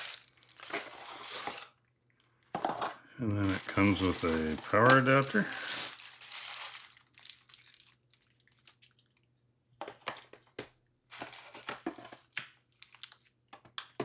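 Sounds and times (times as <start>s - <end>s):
packaging crinkling and rustling: 0.0s - 9.3s, 11.1s - 13.4s.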